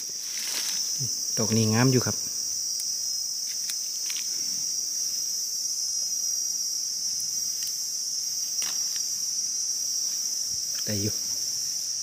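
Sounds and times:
faint rustles in leaf litter: 0.0s - 2.0s
insect chorus trilling: 0.0s - 12.0s.

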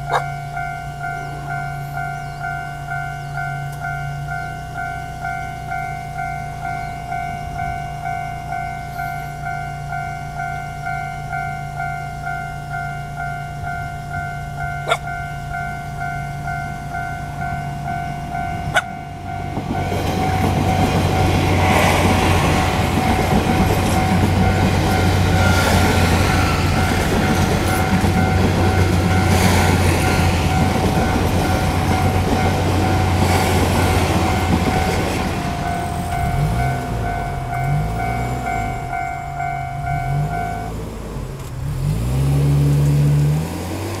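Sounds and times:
level-crossing alarm ringing: 0.0s - 41.3s
diesel train drone: 0.0s - 44.0s
train wheels on rails: 0.0s - 44.0s
truck engine revving: 17.0s - 44.0s.

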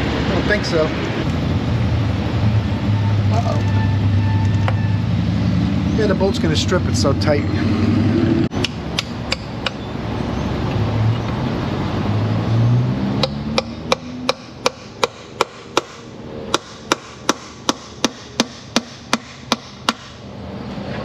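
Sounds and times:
low rumbling noise: 0.0s - 13.2s.

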